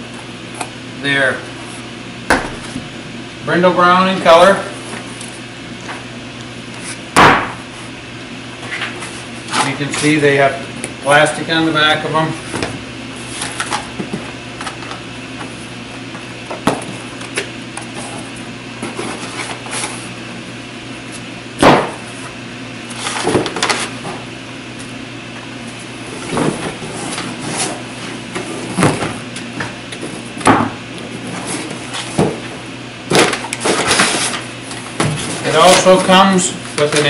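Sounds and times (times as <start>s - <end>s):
steady low hum: 0.0s - 37.0s
panels thumping and rustling: 28.4s - 32.5s, 35.0s - 36.0s.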